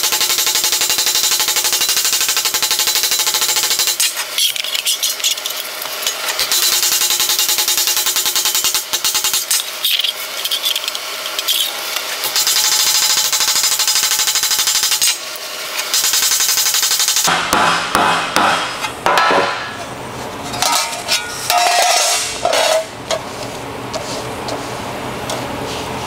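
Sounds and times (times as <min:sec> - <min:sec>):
hammer striking sheet metal: 0:15.9 - 0:19.9, 0:20.5 - 0:23.0.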